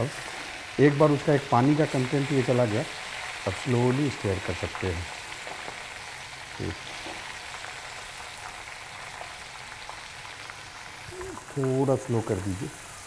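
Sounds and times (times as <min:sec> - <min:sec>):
corn deep-frying in oil: 0:00.0 - 0:13.0.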